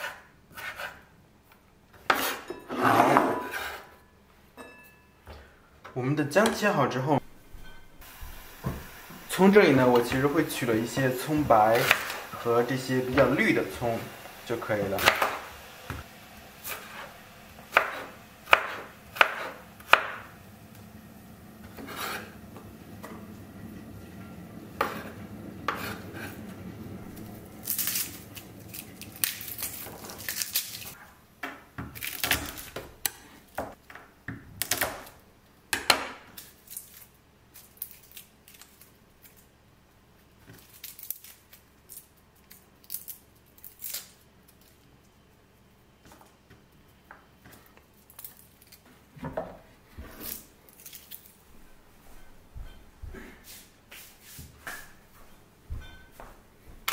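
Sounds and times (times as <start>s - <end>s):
rustling ingredients: 7.3s - 31.2s
knife chopping on wooden board: 15.0s - 16.0s, 16.6s - 20.3s.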